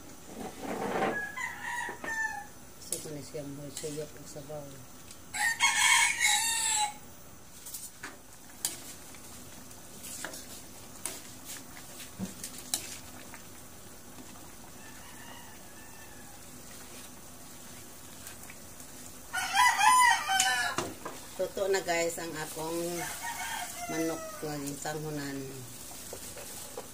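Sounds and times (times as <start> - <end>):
rooster crowing: 1.1 - 2.6, 5.3 - 7.1, 14.8 - 16.6, 19.3 - 20.9, 22.9 - 24.6.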